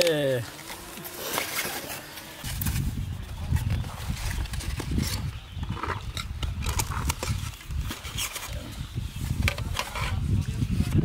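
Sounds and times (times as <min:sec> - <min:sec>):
wind rumble on microphone: 0:02.4 - 0:11.0.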